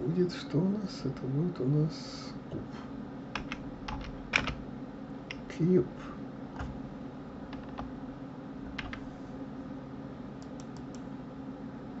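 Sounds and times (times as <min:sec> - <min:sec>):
steady low hum: 0:00.0 - 0:12.0
keyboard keystrokes: 0:03.4 - 0:04.6.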